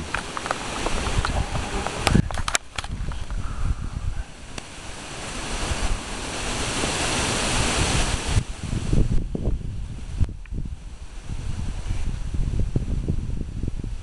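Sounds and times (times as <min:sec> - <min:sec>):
low bumps: 0:00.0 - 0:06.7
wind on microphone: 0:00.0 - 0:14.0.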